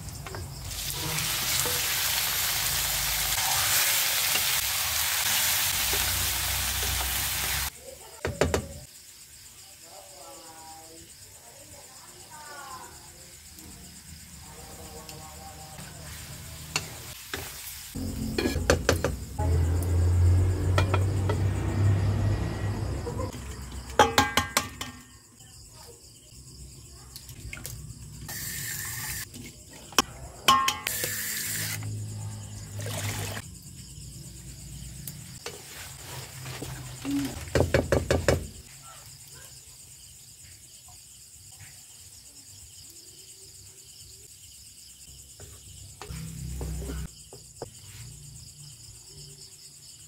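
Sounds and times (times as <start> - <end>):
chicken frying in a wok: 0.0 - 8.6, 13.3 - 25.0, 28.1 - 29.9, 30.5 - 39.3
water splashes: 32.6 - 33.4.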